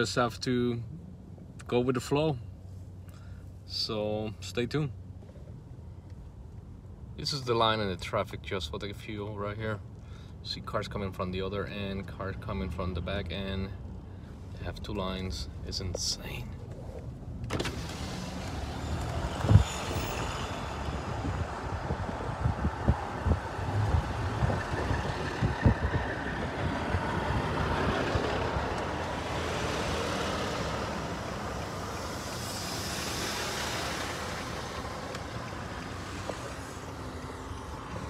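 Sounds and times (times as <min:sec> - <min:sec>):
engine and road rumble: 0:00.0 - 0:38.0
passing vehicle: 0:16.8 - 0:38.0.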